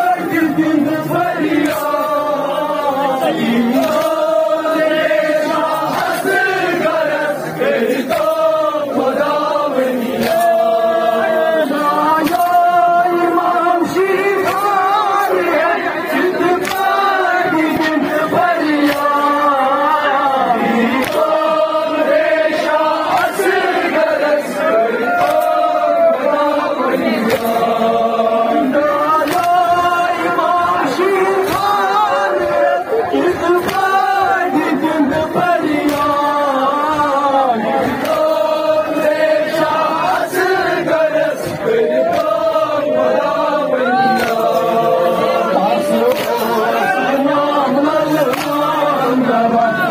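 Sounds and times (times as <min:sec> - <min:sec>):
men chanting lament in unison: 0:00.0 - 0:49.9
reciter through megaphone: 0:00.0 - 0:49.9
hands slapping chests: 0:03.6 - 0:07.1, 0:07.9 - 0:09.4, 0:10.0 - 0:10.8, 0:11.7 - 0:13.1, 0:14.3 - 0:15.3, 0:16.1 - 0:20.2, 0:20.9 - 0:24.3, 0:25.0 - 0:26.4, 0:27.1 - 0:27.9, 0:29.1 - 0:30.7, 0:31.3 - 0:32.1, 0:33.3 - 0:43.4, 0:44.0 - 0:47.2, 0:48.0 - 0:49.1.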